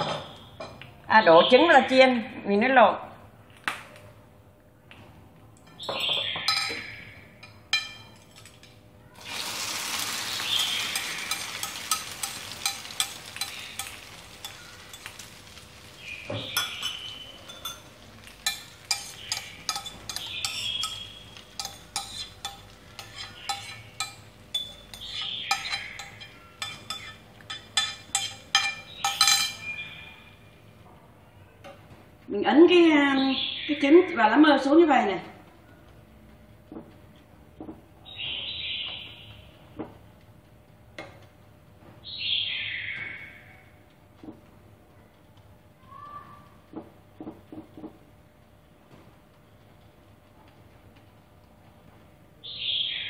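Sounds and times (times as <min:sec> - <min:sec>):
metal spoon clinking on glass bowl: 0:06.5 - 0:08.8, 0:10.8 - 0:15.3, 0:16.5 - 0:29.8
egg sizzling in hot oil: 0:09.2 - 0:29.6.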